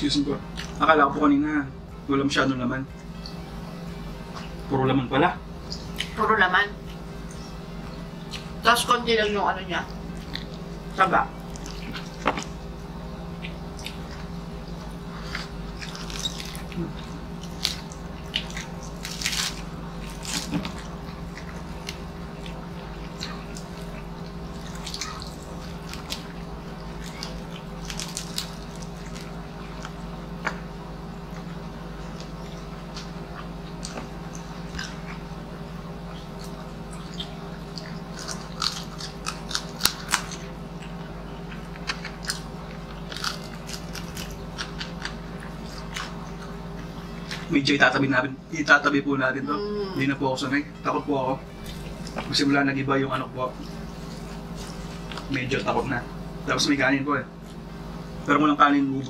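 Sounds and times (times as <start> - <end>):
low hum: 0.0 - 59.0
crunching and chewing: 0.5 - 0.9, 9.9 - 47.7, 51.5 - 52.6, 53.2 - 56.0.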